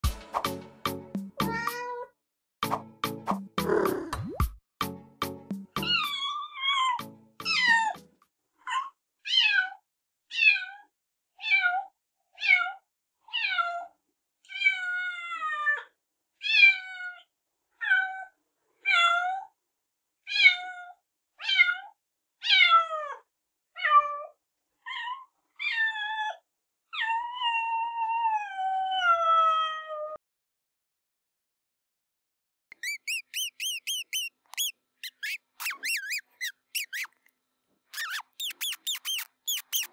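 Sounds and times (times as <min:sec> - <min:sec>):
kitten meowing: 0:01.4 - 0:02.1, 0:32.8 - 0:37.1, 0:38.0 - 0:39.9.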